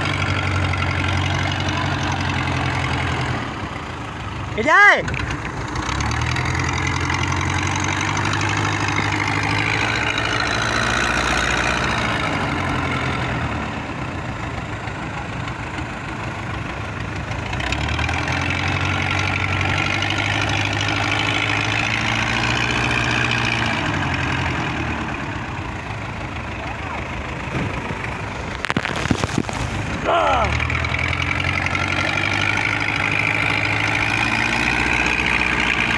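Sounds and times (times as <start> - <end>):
wind: 0.0 - 35.9.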